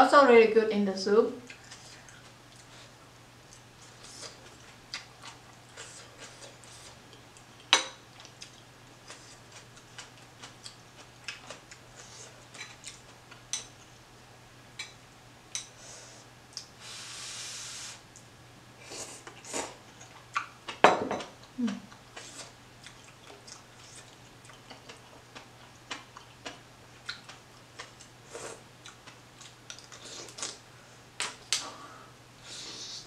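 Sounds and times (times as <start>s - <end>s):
wet chewing and mouth clicks: 3.5s - 13.4s, 19.3s - 20.8s, 21.4s - 30.6s.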